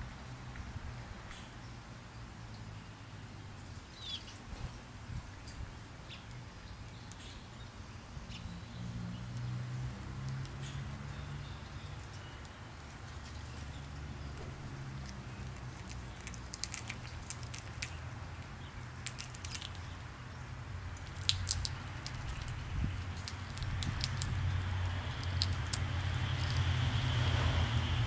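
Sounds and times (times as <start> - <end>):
low traffic rumble: 0.0 - 28.0
peanut shells cracking: 14.4 - 20.0, 21.0 - 27.4.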